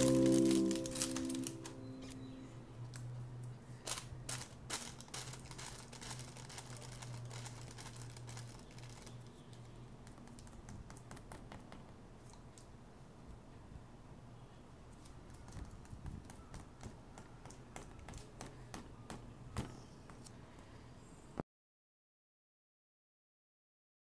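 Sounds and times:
low steady hum: 0.0s - 3.7s.

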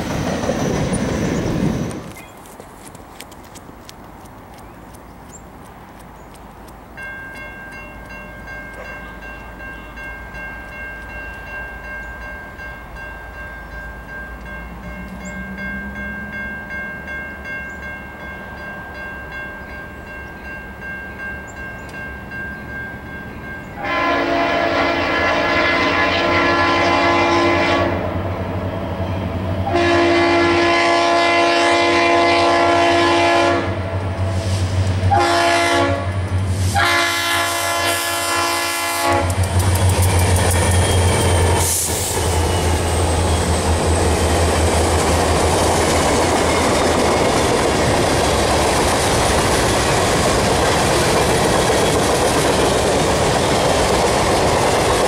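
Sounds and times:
low locomotive engine rumble: 0.0s - 55.0s
crossing bell ringing: 6.8s - 27.7s, 40.0s - 55.0s
locomotive air horn blasts: 23.8s - 28.2s, 29.6s - 34.4s, 35.1s - 39.4s.

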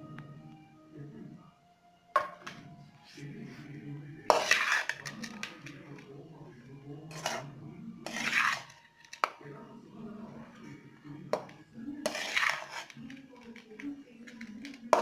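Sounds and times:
metal spoon scraping metal pot: 4.2s - 6.1s, 7.0s - 9.4s, 11.3s - 15.0s.

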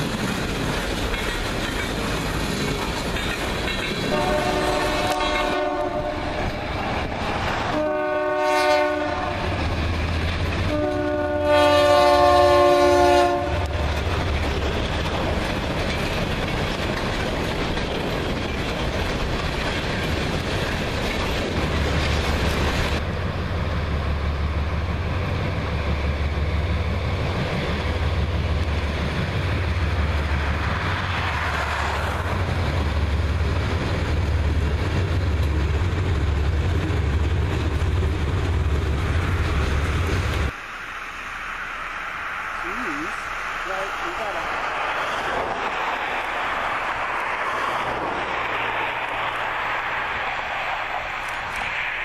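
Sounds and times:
locomotive engine rumble: 0.0s - 52.0s
wheels rattling on rail: 0.0s - 52.0s
train air horn blasts: 4.1s - 6.7s, 7.7s - 9.6s, 10.6s - 13.8s.

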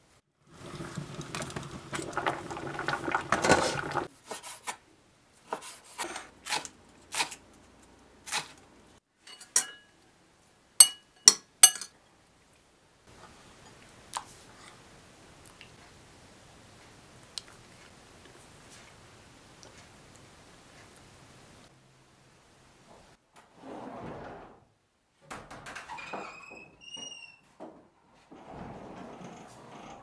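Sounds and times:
broth bubbling in a pot: 0.4s - 4.1s
dishes and utensils clinking: 9.2s - 10.0s, 10.8s - 12.0s.

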